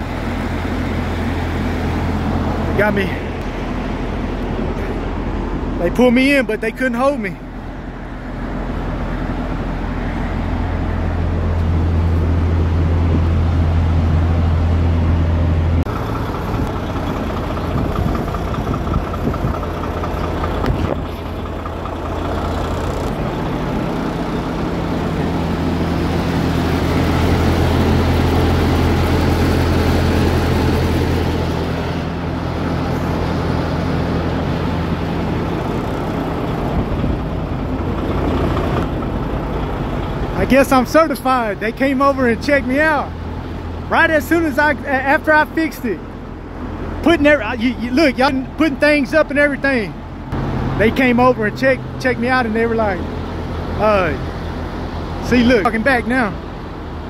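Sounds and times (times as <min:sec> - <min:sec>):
truck engines idling: 0:00.0 - 0:57.0.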